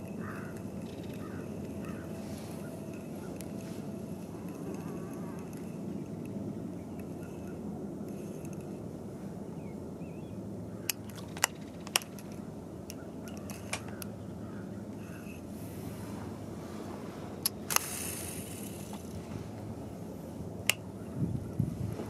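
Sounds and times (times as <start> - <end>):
fishing reel metallic clicks: 0.0 - 6.3, 6.9 - 8.8, 10.9 - 14.0, 17.4 - 19.2.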